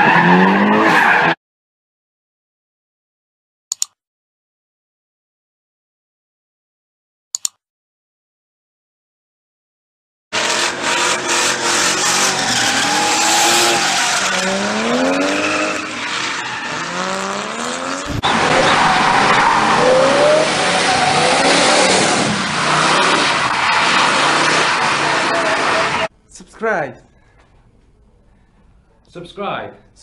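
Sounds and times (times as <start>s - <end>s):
tyres squealing and skidding: 0.0s - 1.4s, 10.4s - 26.1s
car engine revving: 10.4s - 26.1s.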